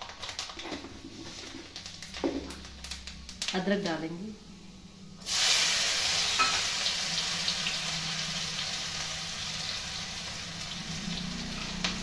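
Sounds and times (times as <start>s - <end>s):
ginger sizzling in hot oil: 5.2s - 12.0s.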